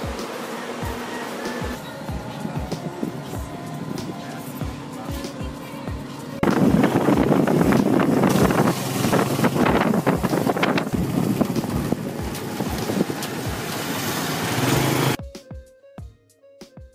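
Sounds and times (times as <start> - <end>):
motorcycle engine: 0.0 - 15.2
wind buffeting microphone: 2.1 - 14.0.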